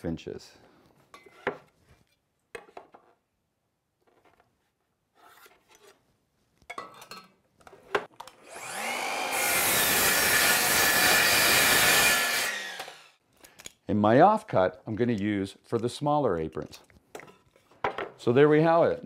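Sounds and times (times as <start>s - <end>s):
miter saw motor whining: 8.4s - 13.2s.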